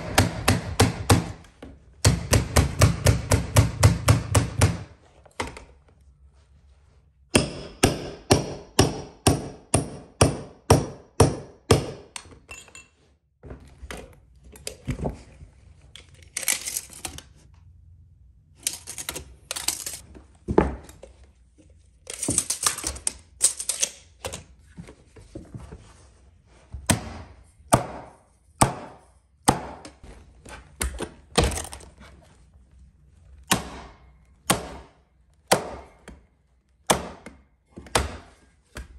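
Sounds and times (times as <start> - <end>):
carpet tool strikes: 0.0 - 1.4, 2.0 - 4.9, 7.3 - 12.2.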